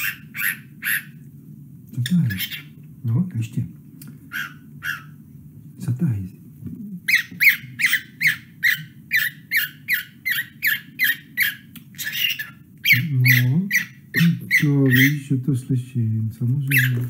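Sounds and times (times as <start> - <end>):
cockatiel chirping: 0.0 - 1.2, 2.0 - 2.8, 4.3 - 5.2, 7.0 - 15.2, 16.7 - 17.0.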